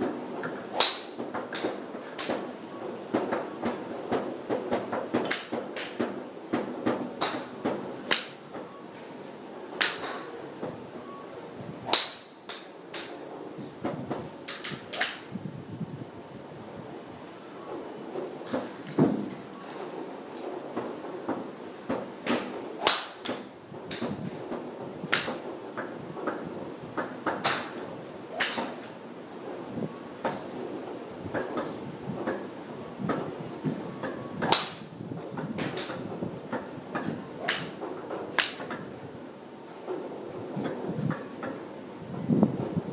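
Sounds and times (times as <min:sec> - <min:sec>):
golf clubs striking balls: 0:00.0 - 0:08.8, 0:09.8 - 0:11.2, 0:11.8 - 0:13.2, 0:13.8 - 0:15.3, 0:18.1 - 0:29.6, 0:30.2 - 0:39.0, 0:39.8 - 0:41.7.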